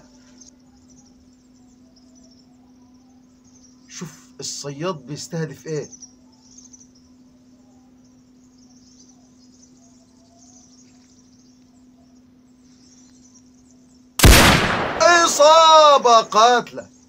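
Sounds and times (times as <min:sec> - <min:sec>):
insects chirping: 0:00.0 - 0:17.0
low steady hum: 0:00.0 - 0:17.0
loud rifle shot: 0:14.2 - 0:16.0.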